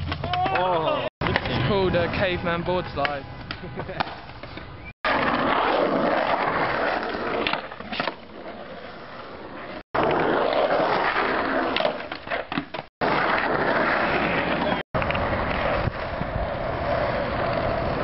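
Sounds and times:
skateboard wheels rolling on asphalt: 0.0 - 18.0
skateboard clacking: 3.0 - 5.3
skateboard sliding on concrete: 3.6 - 18.0.

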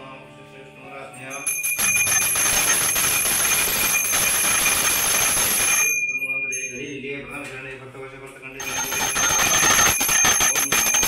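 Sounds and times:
hand bell ringing: 1.3 - 7.0, 8.6 - 11.0.

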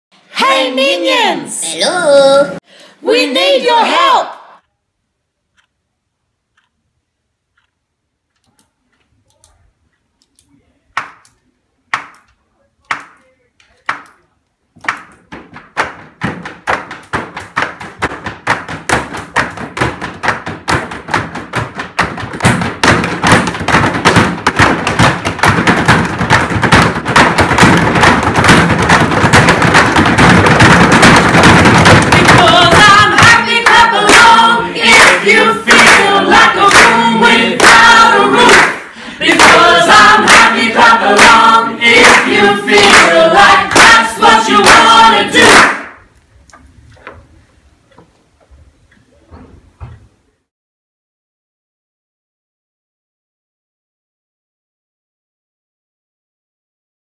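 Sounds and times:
group singing together: 0.3 - 1.6, 3.1 - 4.6, 31.0 - 46.0
people clapping: 11.0 - 12.3, 12.9 - 14.2, 14.8 - 46.0
hands drumming on desks: 14.8 - 38.7, 39.3 - 45.6.

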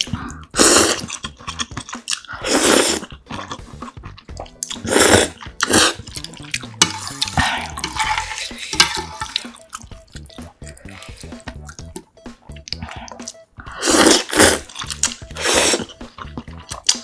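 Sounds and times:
noodles slurped loudly: 0.0 - 4.0, 4.6 - 6.6
chopsticks stirring noodles in broth: 0.0 - 11.9.

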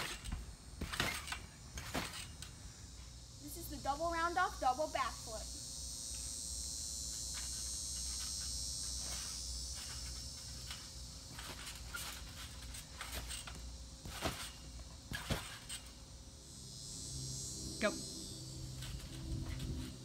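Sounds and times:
thumps on trampoline mat: 0.0 - 2.4, 7.3 - 16.0
insects buzzing: 0.0 - 20.0.

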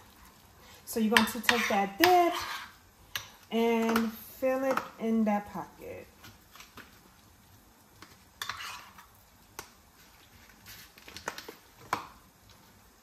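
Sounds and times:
knife scraping a cup: 1.5 - 2.7, 8.4 - 9.0.

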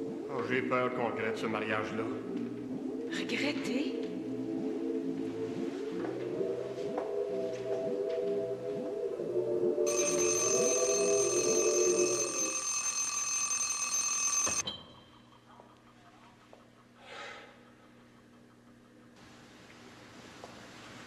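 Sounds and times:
soft music: 0.0 - 12.7
alarm clock bell ringing: 9.9 - 15.3.

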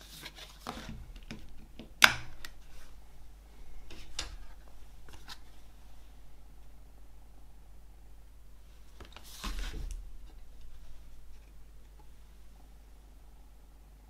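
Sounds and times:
cardboard rustling: 0.0 - 1.8, 9.0 - 11.6.

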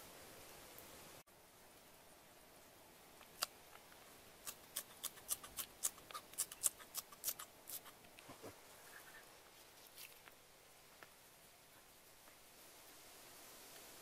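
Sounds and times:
scissors snipping green onions: 4.5 - 7.9.

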